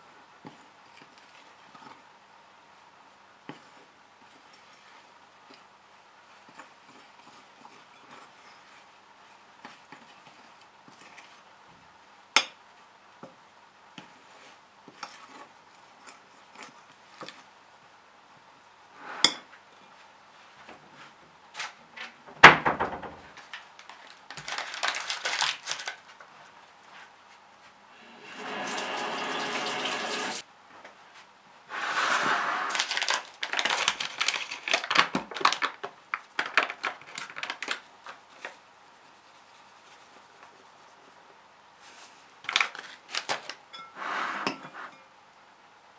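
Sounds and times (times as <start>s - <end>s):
rustling: 23.2s - 27.4s, 31.2s - 43.6s
paper bag crinkling: 23.4s - 26.2s, 32.6s - 37.8s, 41.9s - 43.6s
spoon clinking in glass bowl: 43.7s - 44.6s.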